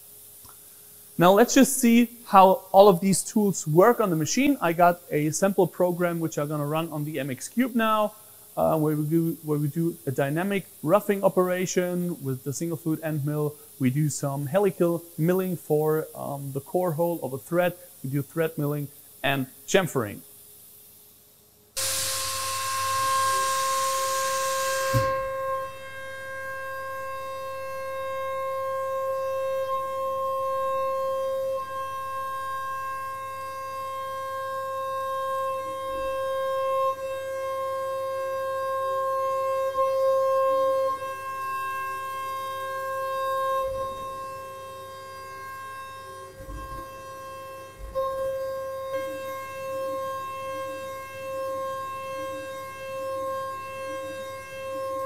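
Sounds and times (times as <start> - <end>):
hiss: 0.0 - 41.1
milling spindle high whine: 21.8 - 55.0.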